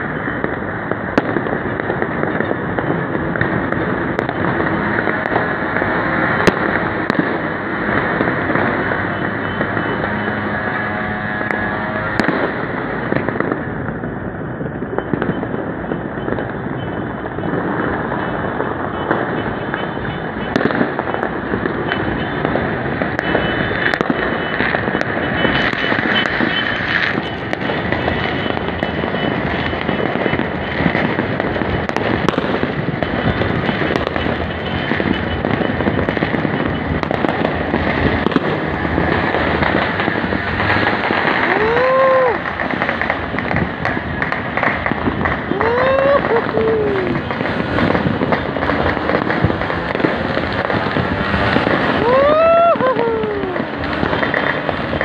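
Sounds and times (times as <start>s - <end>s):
firecrackers crackling and popping: 0.0s - 55.0s.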